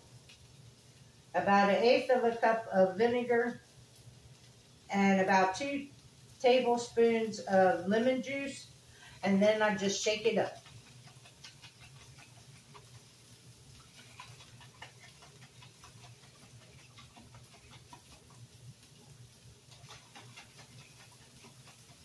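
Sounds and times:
low steady hum: 0:00.0 - 0:22.0
jar of dressing shaken: 0:09.4 - 0:22.0.

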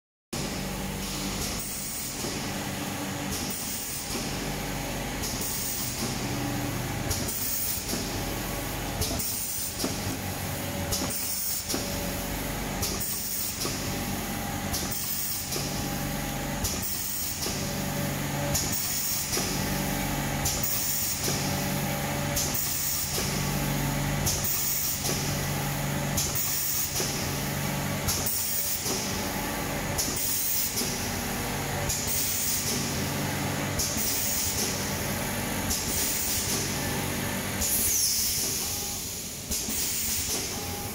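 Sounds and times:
packing machine motor hum: 0:00.4 - 0:40.9
compressed air hiss: 0:37.6 - 0:40.5.

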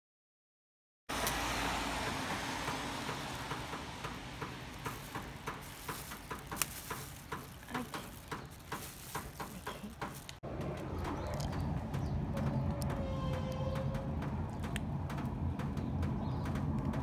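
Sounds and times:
plastic bag crinkling: 0:04.7 - 0:10.4.

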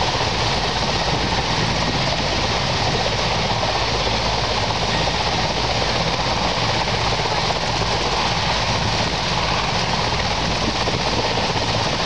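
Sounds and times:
helicopter hovering: 0:00.0 - 0:12.0
helicopter rotors turning: 0:00.0 - 0:12.0.

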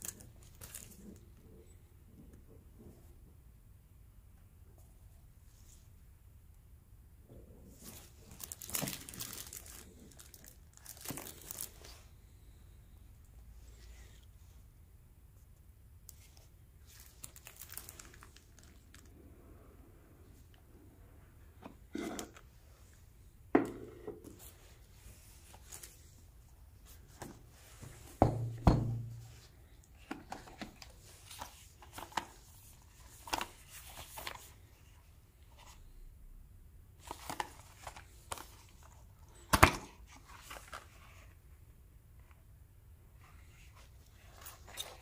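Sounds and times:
cardboard box and plastic wrap rustling: 0:00.0 - 0:01.0, 0:07.8 - 0:12.1, 0:16.8 - 0:19.1.

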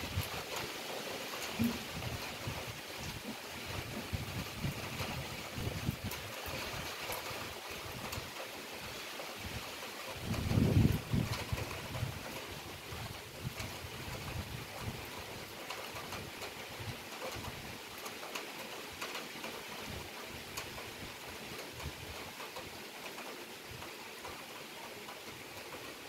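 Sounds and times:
wind buffeting microphone: 0:00.0 - 0:00.6, 0:01.4 - 0:17.8
heavy rain falling: 0:00.0 - 0:26.0
rain drops ticking: 0:00.0 - 0:26.0.

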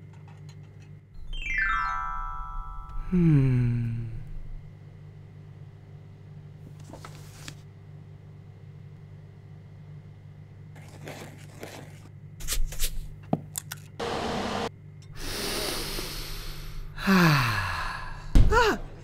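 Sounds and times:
low hum: 0:00.9 - 0:06.5.

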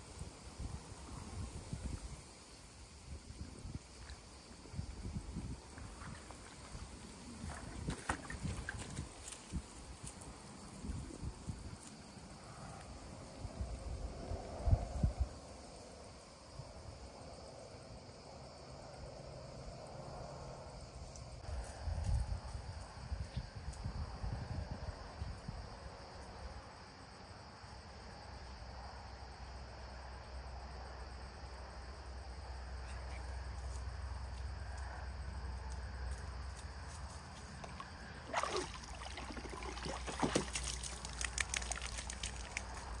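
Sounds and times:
water sloshing in tub: 0:07.4 - 0:09.2, 0:37.5 - 0:43.0
water dripping: 0:37.6 - 0:43.0.

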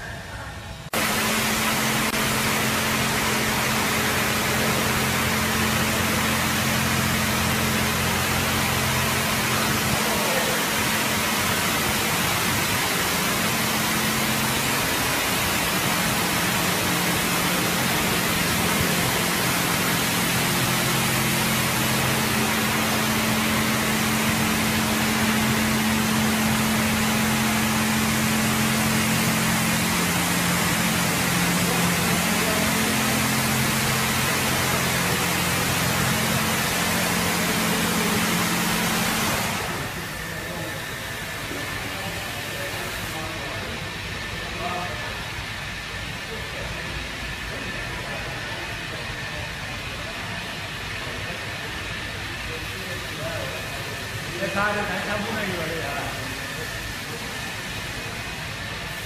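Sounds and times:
pump motor hum: 0:00.9 - 0:59.0
spraying water hiss: 0:01.0 - 0:43.7.

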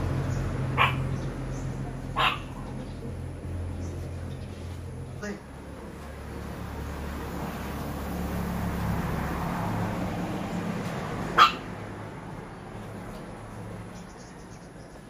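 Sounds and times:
dog barking: 0:00.8 - 0:01.2, 0:02.2 - 0:02.7, 0:11.3 - 0:11.7.

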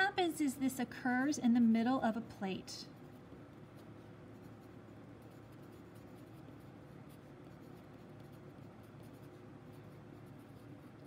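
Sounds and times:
low steady hum: 0:00.0 - 0:11.0
pencil scratching on paper: 0:03.0 - 0:11.0.

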